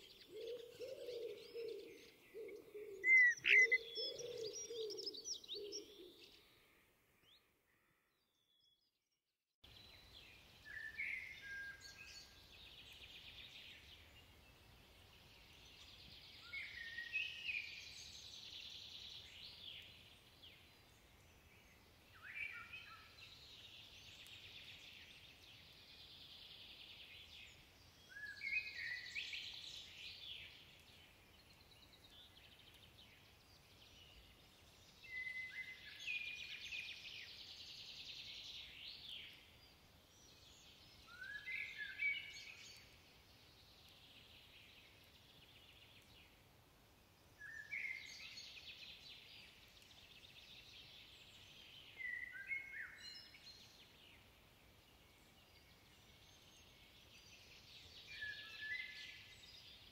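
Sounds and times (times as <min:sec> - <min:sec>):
blackbird singing: 0:00.0 - 0:06.4, 0:31.8 - 0:39.4, 0:40.1 - 0:42.9, 0:47.4 - 0:49.4, 0:51.2 - 0:53.8, 0:55.5 - 0:59.8.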